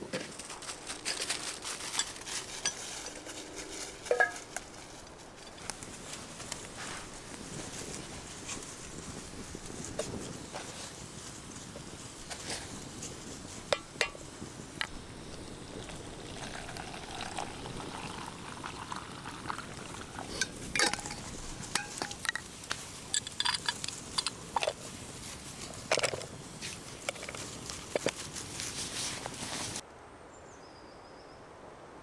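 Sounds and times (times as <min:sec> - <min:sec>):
cookware knocking and clinking: 0:04.1 - 0:04.4.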